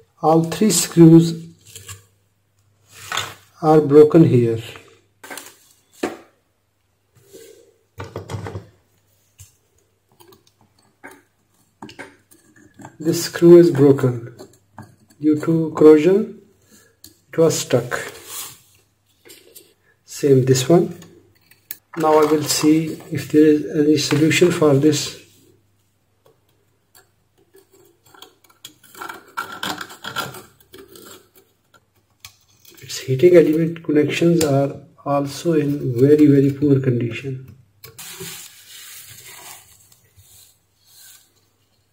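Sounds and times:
metal tool scraping screw: 11.5s - 13.4s, 27.0s - 31.6s.

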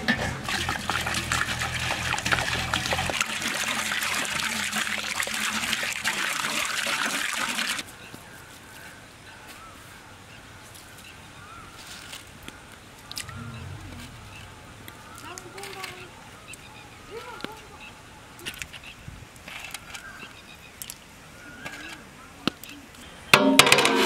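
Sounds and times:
water pouring into metal pot: 0.1s - 7.8s.

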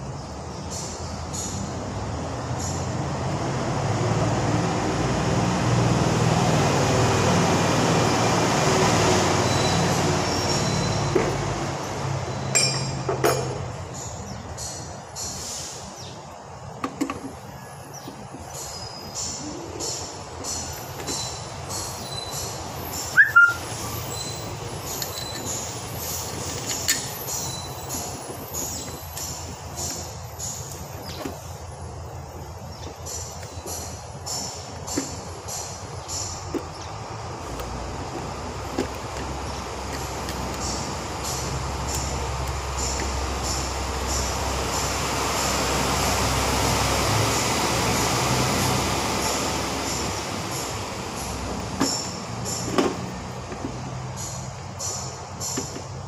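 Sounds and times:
steady background noise: 0.0s - 56.0s
metallic clinks: 12.5s - 13.6s
hissing mechanical rumble: 18.4s - 56.0s
high squeaks: 18.5s - 36.8s.

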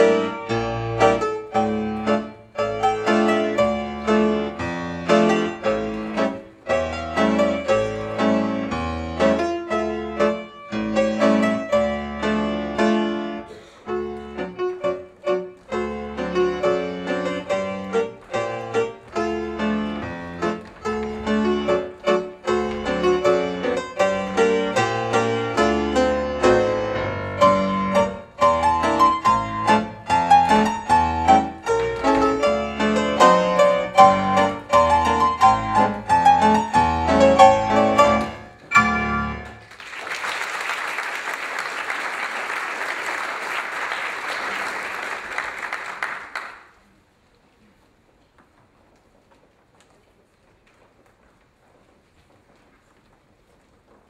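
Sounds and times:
piano music: 0.0s - 39.8s
audience applause: 39.4s - 46.8s.

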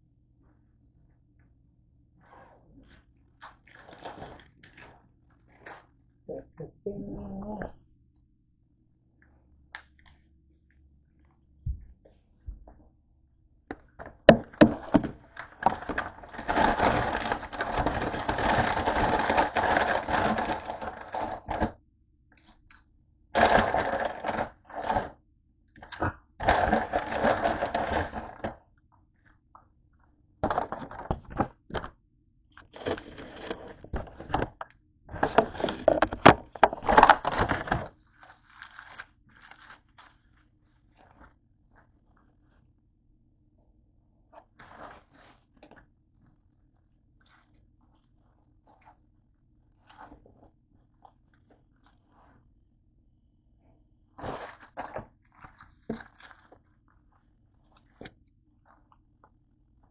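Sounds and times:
paper and foil rustling: 14.6s - 21.7s, 23.4s - 25.1s, 26.4s - 28.6s, 35.2s - 40.4s.

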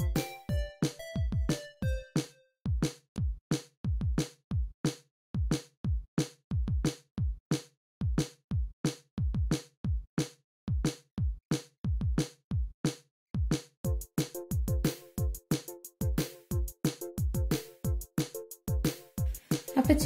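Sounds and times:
electronic drum-machine beat: 0.0s - 4.7s, 13.8s - 20.0s.

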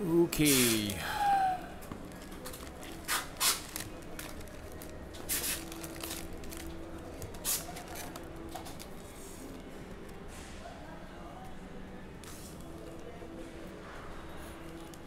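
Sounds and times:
plastic wrappers tearing: 2.2s - 8.9s.

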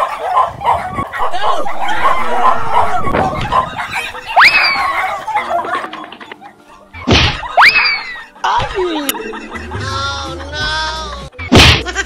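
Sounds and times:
dog barking and yelping: 0.0s - 8.4s.

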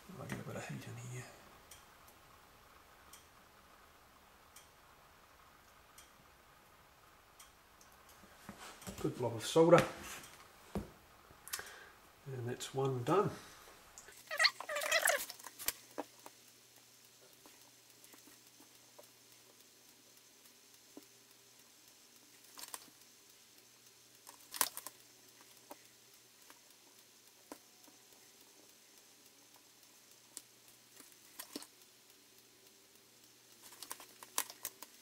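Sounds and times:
faint steady hum: 0.0s - 35.0s
small clicks and taps: 14.0s - 35.0s.

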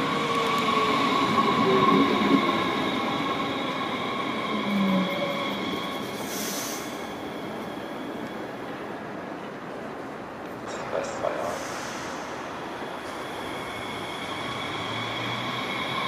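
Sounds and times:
train brakes squealing: 2.8s - 8.2s
short hiss: 11.5s - 12.4s.

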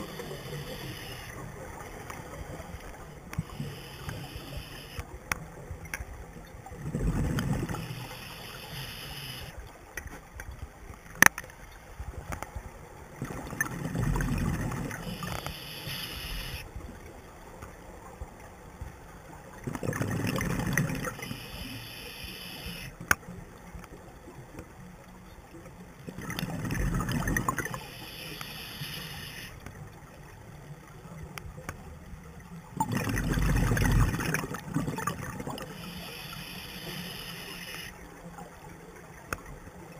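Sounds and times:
diver exhaling bubbles underwater: 32.8s - 36.0s.

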